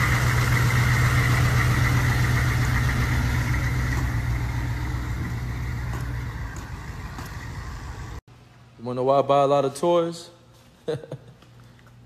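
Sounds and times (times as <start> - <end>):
truck engine droning: 0.0 - 8.2.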